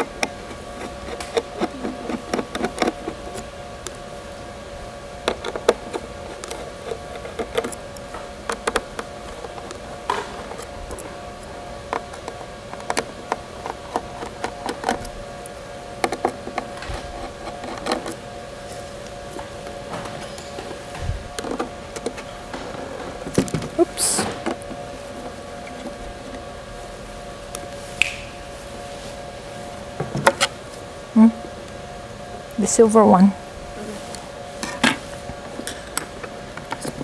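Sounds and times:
steady hum: 0.0s - 37.0s
screwdriver clicking on screws: 5.2s - 7.8s.

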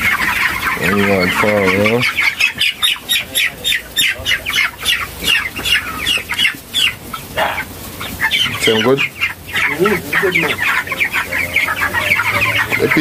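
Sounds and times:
chicks peeping: 0.0s - 13.0s
louder lower chicken call: 7.3s - 7.7s.

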